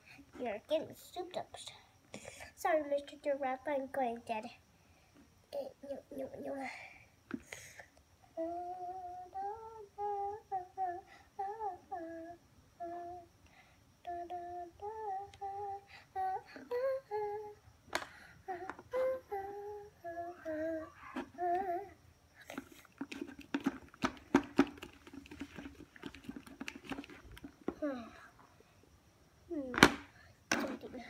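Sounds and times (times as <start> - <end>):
child humming: 8.4 - 13.3, 14.0 - 17.6, 18.4 - 22.8.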